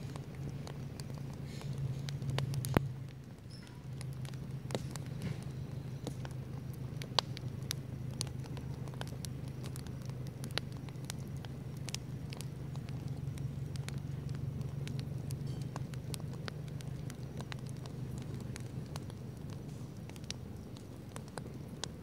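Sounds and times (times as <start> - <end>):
campfire crackling and popping: 0.0 - 22.0.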